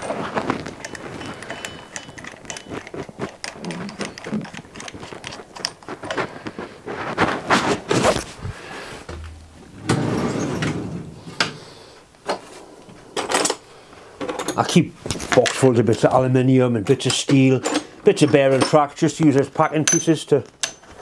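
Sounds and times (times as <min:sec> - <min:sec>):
metal clunks and scraping: 0:07.0 - 0:12.6
metal sliding scrape: 0:09.7 - 0:11.7.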